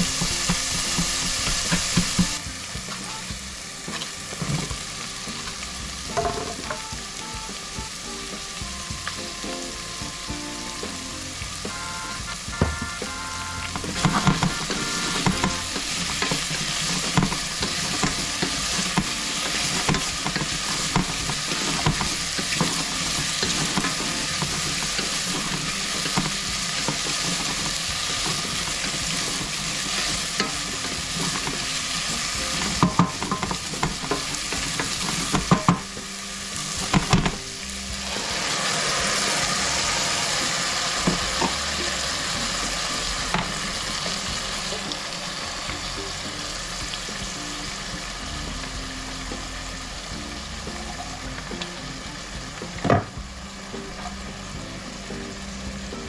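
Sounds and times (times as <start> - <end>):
spatula stirring: 0.0 - 3.2, 13.6 - 36.0
vegetables sizzling in oil: 0.0 - 56.0.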